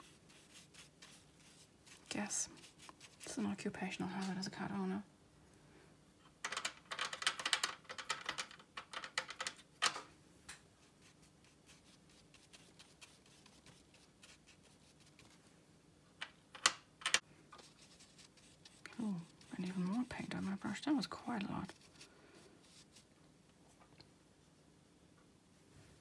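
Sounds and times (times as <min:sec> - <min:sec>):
brush scratching in paint pans: 0:00.0 - 0:04.6, 0:10.8 - 0:15.4, 0:17.6 - 0:23.1
brush tapping palette: 0:17.6 - 0:21.9.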